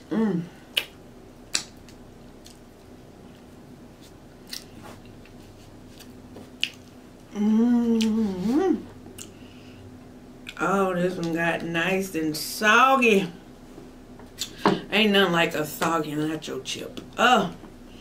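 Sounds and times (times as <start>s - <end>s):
person humming mmm: 0.0s - 0.9s, 7.3s - 9.4s
wet mouth clicks and smacks: 0.7s - 2.6s, 6.6s - 6.9s.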